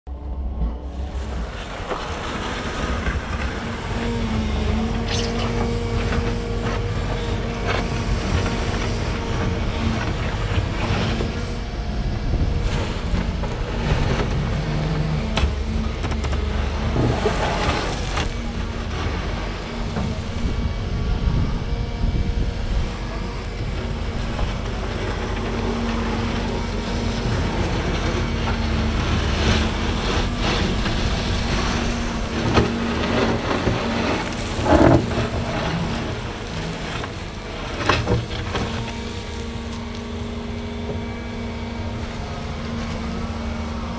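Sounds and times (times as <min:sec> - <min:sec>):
excavator engine rumbling: 0:00.1 - 0:43.9
bucket digging gravel: 0:23.9 - 0:40.8.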